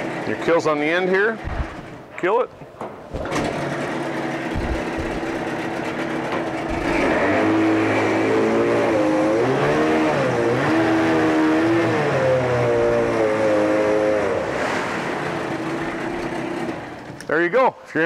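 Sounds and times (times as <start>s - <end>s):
outboard engine revving: 3.2s - 17.0s.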